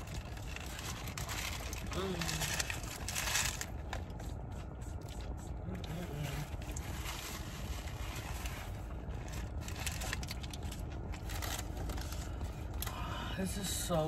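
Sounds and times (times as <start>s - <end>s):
paper wrapper crinkling: 0.0s - 5.4s, 6.3s - 12.9s
burger being bitten and chewed: 0.0s - 13.0s
low rumble inside a car: 0.0s - 14.0s.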